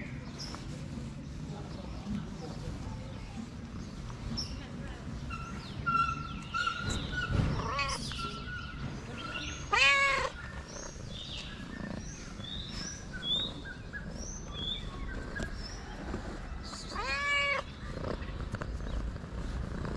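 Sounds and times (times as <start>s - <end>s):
cat meowing: 7.6s - 8.1s, 9.6s - 10.4s, 16.9s - 17.7s.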